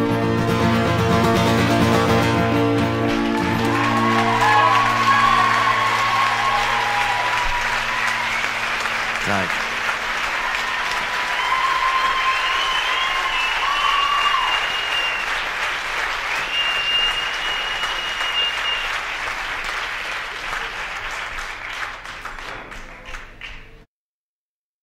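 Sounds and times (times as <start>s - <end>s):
audience applauding: 1.6s - 23.9s
high whistles: 10.5s - 15.5s, 16.2s - 19.1s.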